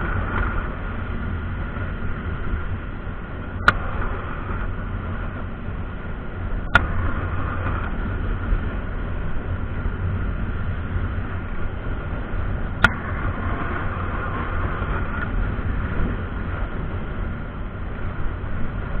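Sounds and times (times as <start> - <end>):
scooter engine and road noise: 0.0 - 19.0
wind rumble while riding: 0.0 - 19.0.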